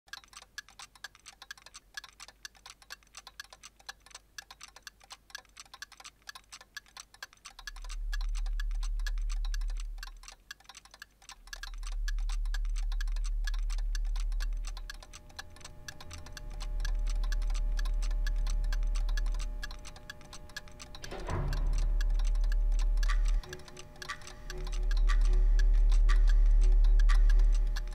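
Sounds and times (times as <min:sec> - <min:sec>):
rapid clock-like ticking: 0:00.1 - 0:27.9
deep bass swells: 0:07.7 - 0:10.2, 0:11.4 - 0:20.6, 0:21.2 - 0:27.9
held chord of sustained notes: 0:12.0 - 0:27.9.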